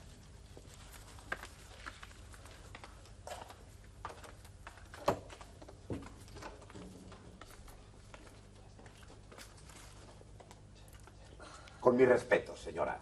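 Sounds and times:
low steady hum: 0:00.0 - 0:13.0
footsteps on hard floor: 0:00.5 - 0:10.5.

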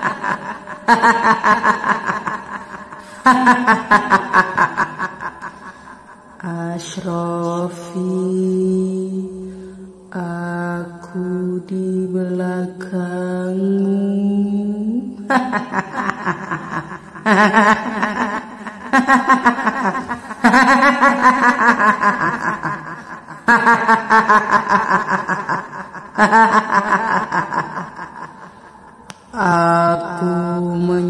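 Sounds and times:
woman cackling laugh: 0:00.0 - 0:06.0, 0:15.3 - 0:29.0
woman speaking: 0:06.4 - 0:09.3, 0:29.4 - 0:31.0.

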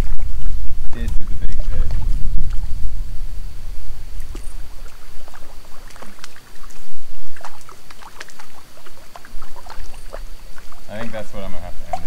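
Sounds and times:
fish splashing at water surface: 0:04.2 - 0:11.2.

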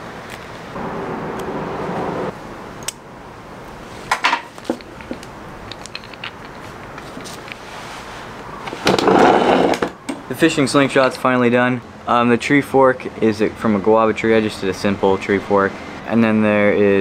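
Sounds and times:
steady rushing noise: 0:00.0 - 0:03.6.

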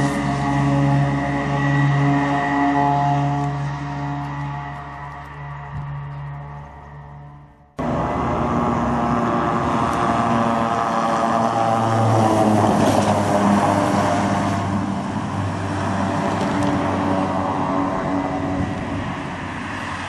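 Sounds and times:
vehicle engine running: 0:00.0 - 0:19.7.

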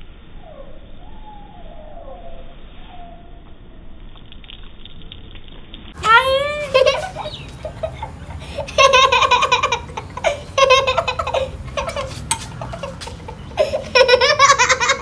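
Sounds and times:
girls giggling: 0:06.0 - 0:15.0.

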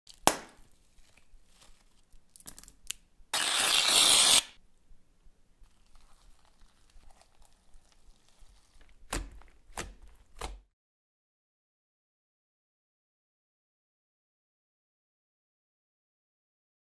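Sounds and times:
sharp crackling pops of slime: 0:00.1 - 0:00.6
rough tearing noise: 0:03.3 - 0:04.6
hands squeezing slime: 0:05.6 - 0:10.6.

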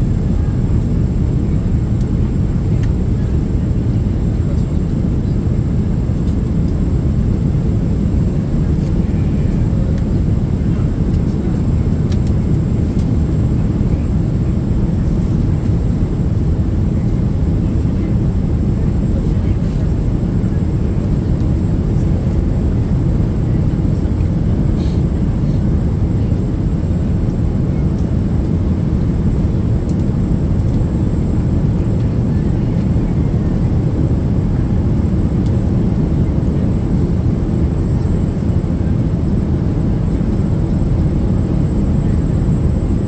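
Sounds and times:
airplane cabin rumble: 0:00.0 - 0:43.0.

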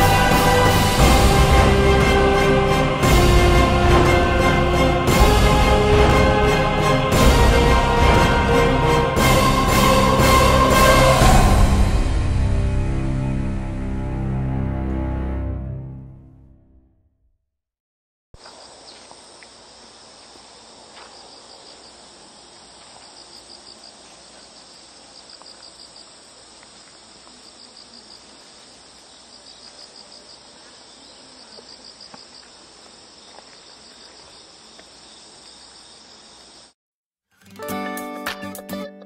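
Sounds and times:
insect trills of rapid pulses: 0:18.4 - 0:36.8
insects chirring: 0:18.4 - 0:36.8.

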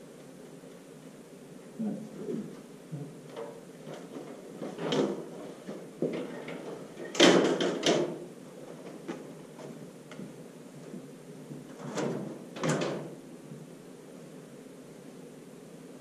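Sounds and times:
stepladder clattering: 0:03.2 - 0:10.3.

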